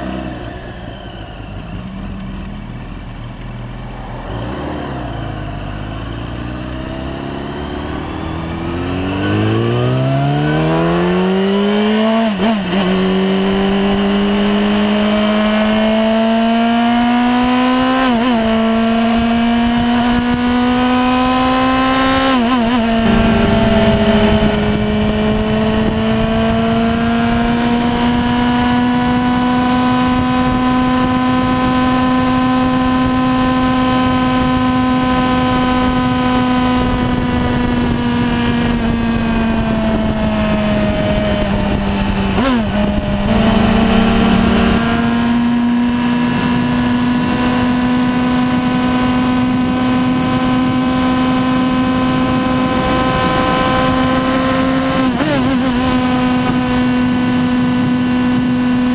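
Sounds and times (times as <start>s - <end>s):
motorcycle engine running hard: 0.0s - 58.9s
wind rushing over microphone: 3.6s - 58.9s.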